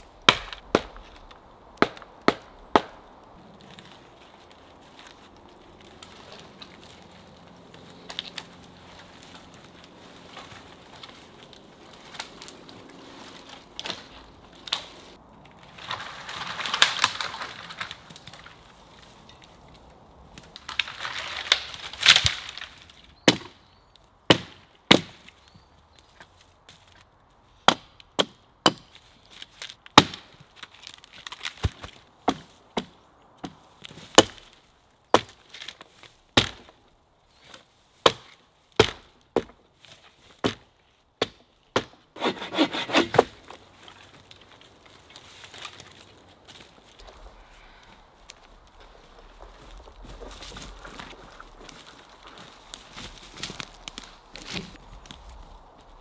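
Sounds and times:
wood cracking and snapping: 0:00.2 - 0:23.6, 0:28.8 - 0:32.9, 0:43.0 - 0:56.0
hatchet chopping wood: 0:00.3 - 0:01.2, 0:01.8 - 0:03.0, 0:24.3 - 0:25.2, 0:27.6 - 0:28.9, 0:29.9 - 0:30.3, 0:34.2 - 0:34.4, 0:35.1 - 0:35.4, 0:36.4 - 0:36.7, 0:38.0 - 0:39.6, 0:40.4 - 0:43.4.

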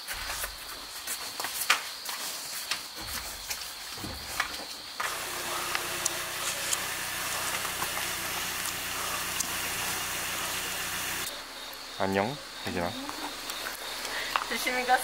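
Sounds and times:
car engine idling: 0:05.1 - 0:11.3.

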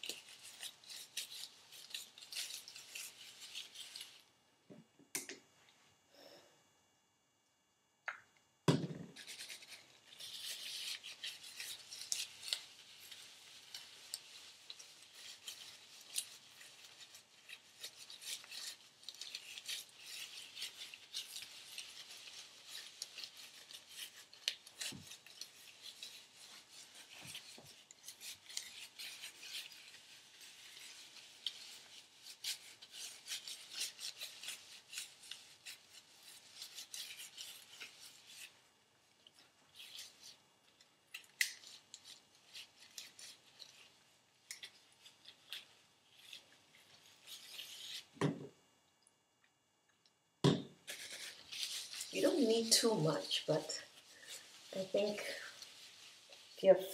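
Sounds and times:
hands rubbing wet hair: 0:00.0 - 0:04.3, 0:09.1 - 0:48.6, 0:50.8 - 0:56.9
knock: 0:08.7 - 0:09.1.

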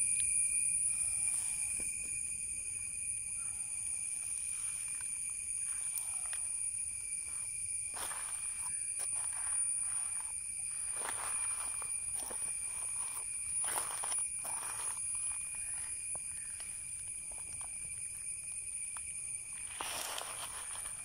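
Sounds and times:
insects droning: 0:00.0 - 0:21.0
footsteps on gravel: 0:08.0 - 0:16.0.

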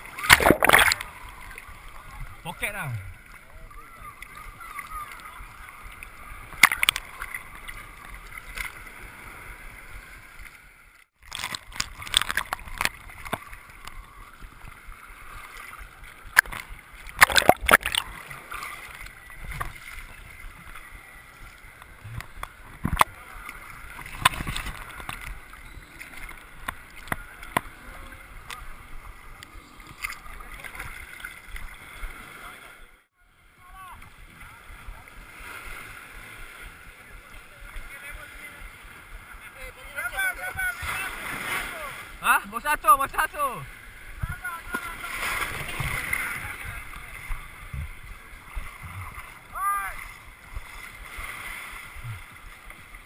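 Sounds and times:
seawater sloshing and splashing: 0:00.0 - 0:32.8, 0:43.6 - 0:53.0.

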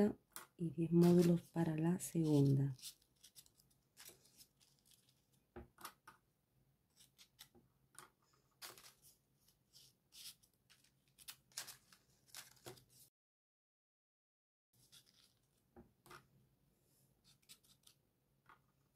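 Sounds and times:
paper rustling: 0:00.9 - 0:05.4, 0:08.3 - 0:13.1, 0:14.8 - 0:16.2.

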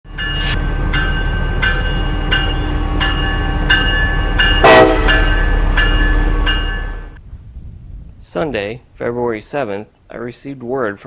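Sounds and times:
crossing bell ringing: 0:00.1 - 0:07.2
freight train rumble: 0:00.1 - 0:10.8
train horn blast: 0:02.3 - 0:07.2.

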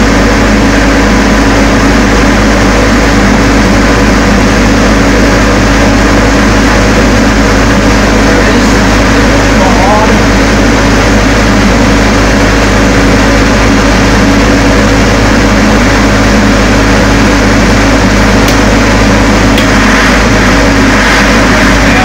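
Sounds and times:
diesel generator running: 0:00.0 - 0:22.0.

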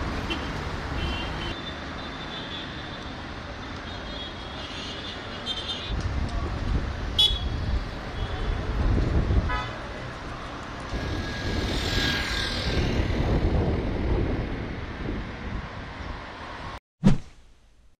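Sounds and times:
cars and rickshaws passing: 0:00.0 - 0:16.8
wind rumble on microphone: 0:05.9 - 0:16.8.

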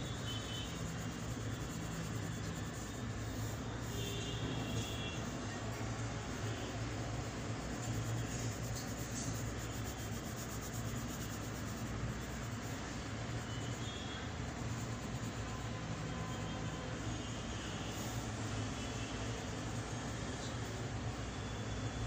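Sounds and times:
pencil scratching on paper: 0:00.0 - 0:17.1
steady low hum: 0:00.0 - 0:21.1.

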